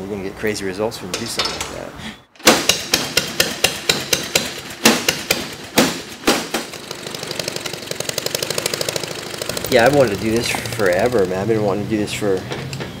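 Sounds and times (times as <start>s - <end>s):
even pulsing: 6.7s - 11.8s.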